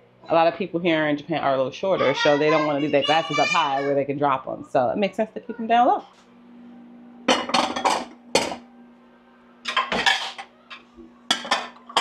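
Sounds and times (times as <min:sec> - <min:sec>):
microwave oven hum: 0:00.0 - 0:12.0
dishes clattering and clinking: 0:07.3 - 0:08.6, 0:09.6 - 0:12.0.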